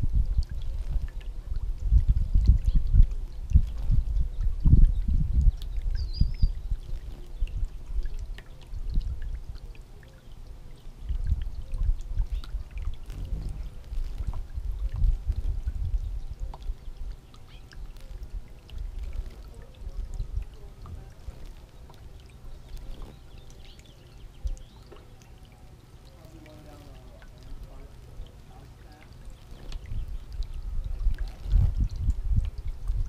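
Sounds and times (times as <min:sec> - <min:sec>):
fountain water splashing: 0:00.0 - 0:33.0
low rumble: 0:12.1 - 0:16.4.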